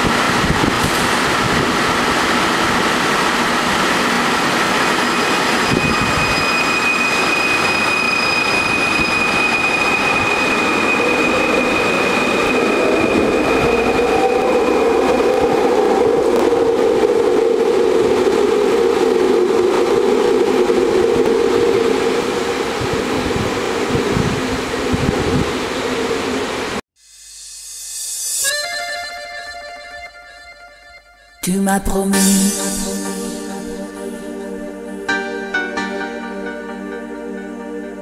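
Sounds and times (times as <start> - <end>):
train high electric whine: 0.0 - 30.6
low hum: 32.0 - 38.0.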